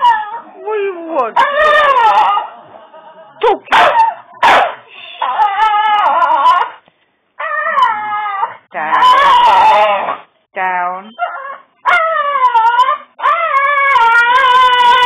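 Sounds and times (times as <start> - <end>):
dog whining: 0.0 - 2.5, 4.9 - 6.8, 7.4 - 10.3, 11.1 - 15.0
dog yelping: 1.4 - 2.5, 3.5 - 6.8, 7.4 - 10.2, 11.1 - 15.0.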